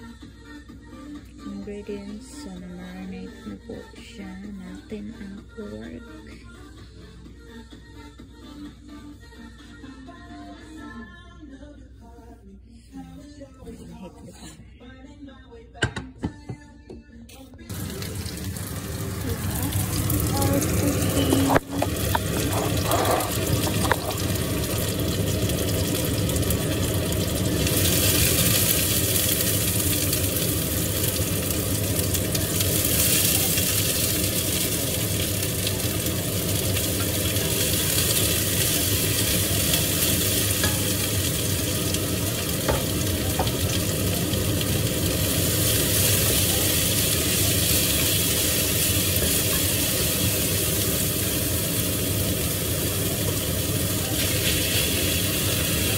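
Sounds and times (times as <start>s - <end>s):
food sizzling in a pot: 17.7s - 55.9s.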